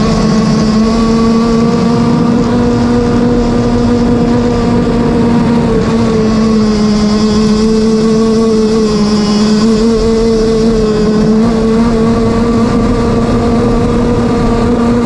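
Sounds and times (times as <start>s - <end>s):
two-stroke boat engine running: 0.0s - 15.0s
wind: 0.0s - 15.0s.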